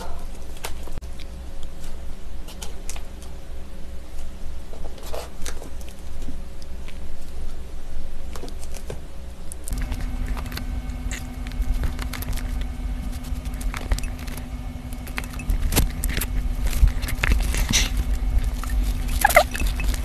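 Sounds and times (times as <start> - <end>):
steady low hum: 9.3 - 20.0
paper cups being handled: 9.7 - 20.0.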